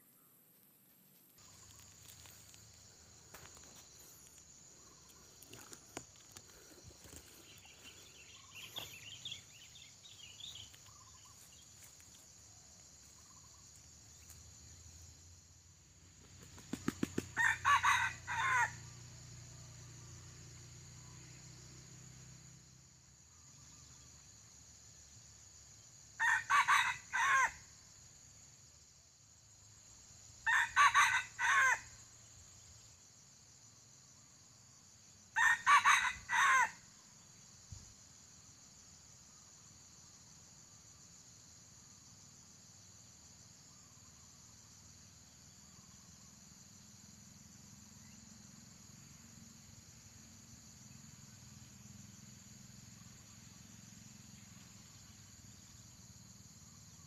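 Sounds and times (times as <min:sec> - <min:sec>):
insects droning: 0:00.0 - 0:57.0
rooster crowing: 0:17.4 - 0:18.9, 0:26.2 - 0:27.6, 0:30.4 - 0:31.9, 0:35.4 - 0:36.8.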